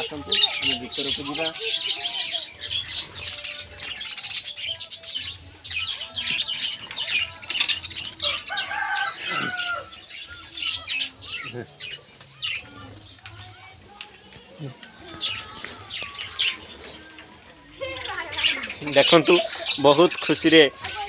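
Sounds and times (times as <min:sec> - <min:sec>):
budgerigars chirping: 0:00.0 - 0:13.1, 0:17.9 - 0:20.8.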